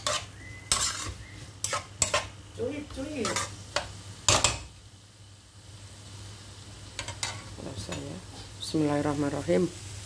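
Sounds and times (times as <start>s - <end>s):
spatula scraping frying pan: 0.0s - 4.7s
light sizzle of stir-fry: 0.0s - 10.0s.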